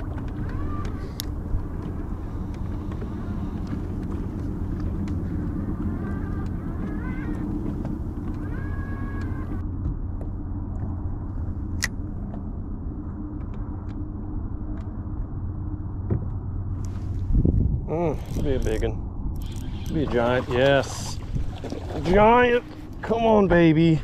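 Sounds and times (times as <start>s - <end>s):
electric trolling motor running: 0.0s - 9.6s
whirring tones: 0.0s - 9.8s.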